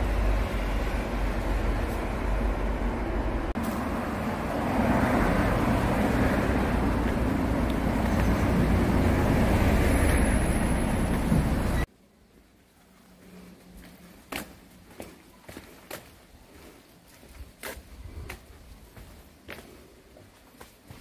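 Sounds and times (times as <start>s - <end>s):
road traffic rumble: 0.0s - 11.9s.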